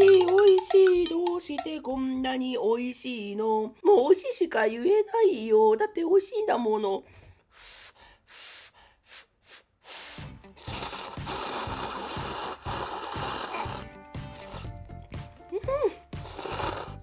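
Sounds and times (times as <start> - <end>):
person slurping noodles: 10.5 - 14.8, 16.2 - 17.0.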